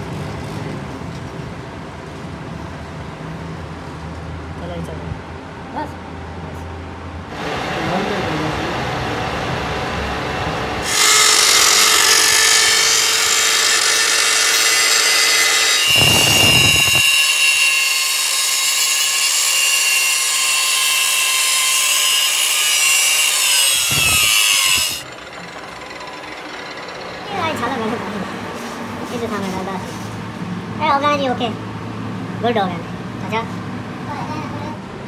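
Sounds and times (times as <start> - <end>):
power tool working metal: 7.3 - 28.4.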